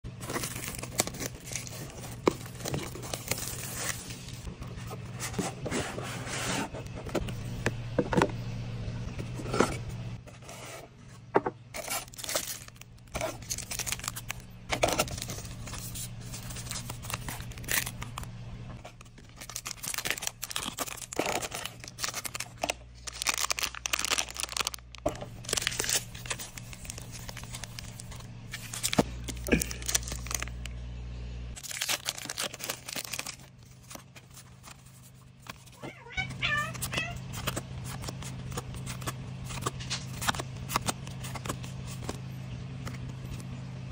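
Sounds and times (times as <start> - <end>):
plastic and foil packs crinkling: 0.1 - 4.5, 11.7 - 30.7, 31.6 - 43.5
shrink wrap tearing: 0.2 - 4.5, 11.8 - 30.7, 31.6 - 42.2.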